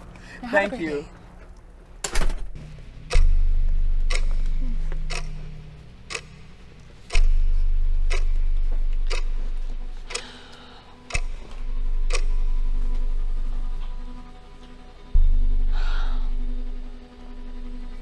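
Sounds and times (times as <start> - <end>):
clock ticking loudly: 2.6 - 14.5
deep low drone: 2.6 - 18.0.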